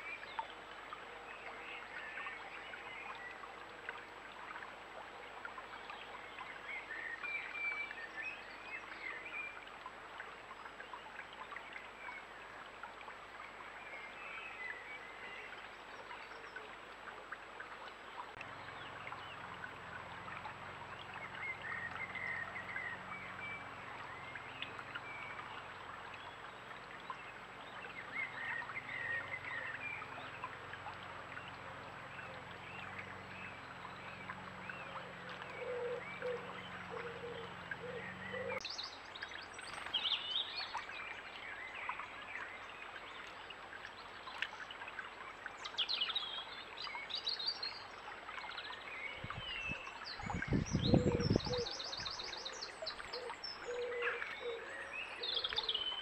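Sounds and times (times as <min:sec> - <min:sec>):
bird song: 0:00.0 - 0:12.8, 0:13.4 - 0:16.9, 0:18.0 - 0:56.0
stream trickling over stones: 0:00.0 - 0:56.0.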